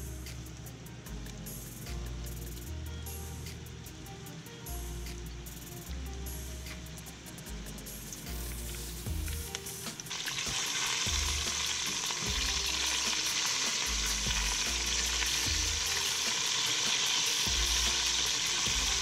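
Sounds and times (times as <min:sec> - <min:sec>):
chicken frying in hot oil: 0:08.4 - 0:19.0.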